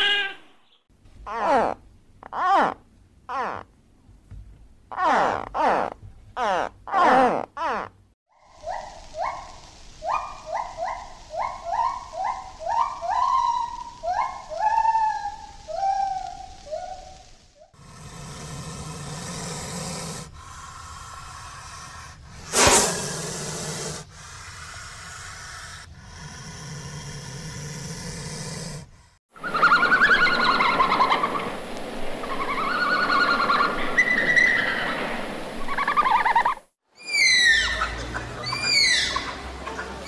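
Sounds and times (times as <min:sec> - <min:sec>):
snake hissing: 0:08.4 - 0:29.2
red panda squealing calls: 0:37.0 - 0:39.3.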